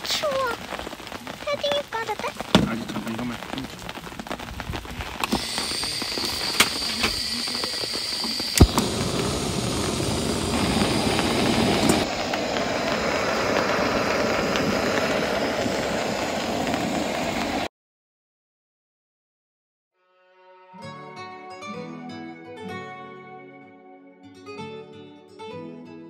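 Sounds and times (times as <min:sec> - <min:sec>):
gas stove hissing: 0:04.6 - 0:17.7
igniter clicks: 0:05.2 - 0:12.1.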